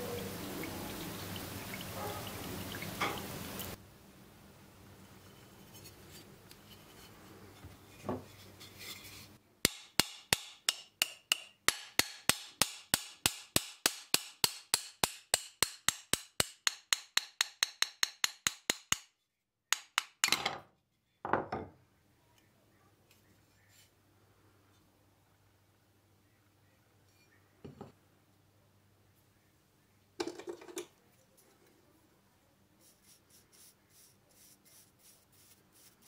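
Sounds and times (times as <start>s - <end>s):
scraping rubs: 5.3s - 9.4s
hammer tapping on steel: 9.6s - 19.1s, 19.7s - 20.3s.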